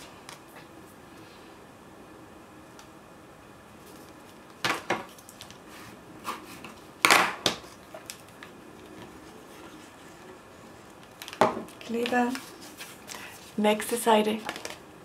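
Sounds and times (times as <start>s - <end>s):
paper rustling: 7.6s - 14.8s.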